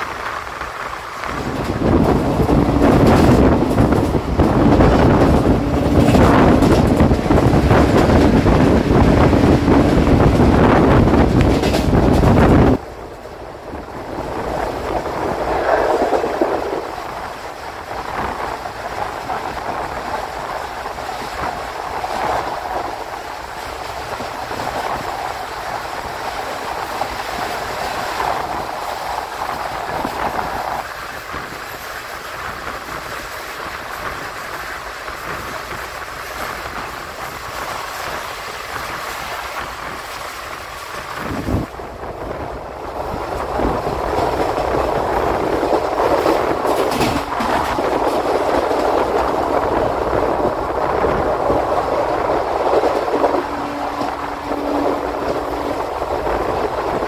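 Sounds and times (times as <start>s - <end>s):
passenger coach running noise: 0.0s - 57.0s.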